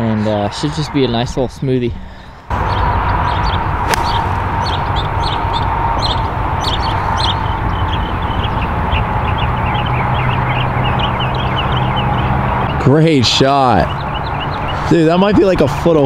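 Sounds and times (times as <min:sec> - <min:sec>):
small birds chirping: 0:00.0 - 0:16.0
golf club striking ball: 0:03.8 - 0:05.5.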